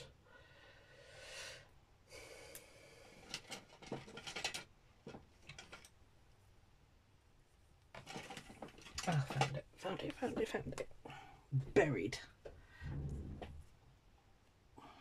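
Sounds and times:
soft breath: 0.0s - 3.7s, 12.5s - 13.2s, 14.7s - 15.0s.

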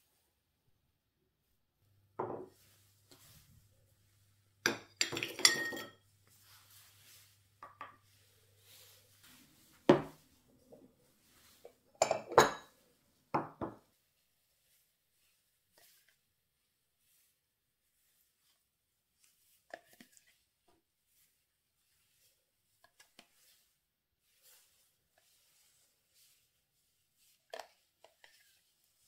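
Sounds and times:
bowls set down on wooden table: 2.2s - 2.6s, 9.9s - 10.2s
metal spoon knocking bowls: 4.7s - 6.0s.

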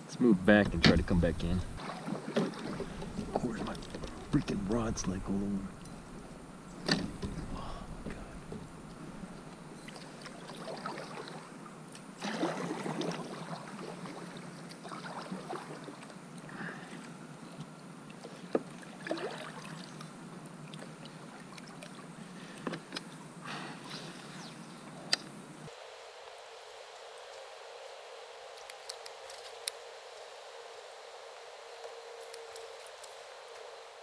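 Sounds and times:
paddle swishing through water: 1.8s - 4.7s, 9.8s - 11.6s, 12.2s - 16.2s.

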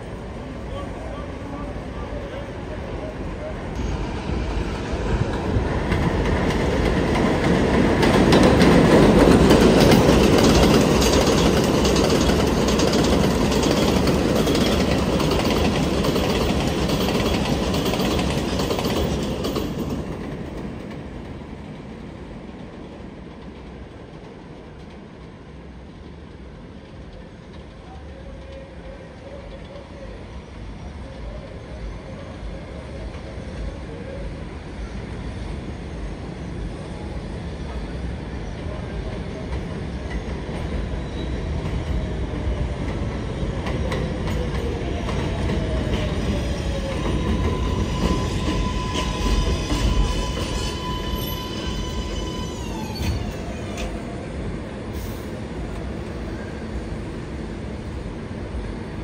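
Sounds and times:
distant trains rumbling: 0.0s - 59.0s
train wheels clattering on rails: 3.8s - 25.4s, 39.0s - 54.0s.

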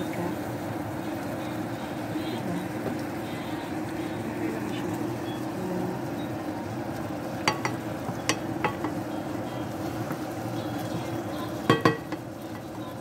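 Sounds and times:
chicken and onion sizzling in oil: 0.0s - 13.0s
spatula knocking against pan: 7.4s - 9.0s, 11.6s - 12.3s.

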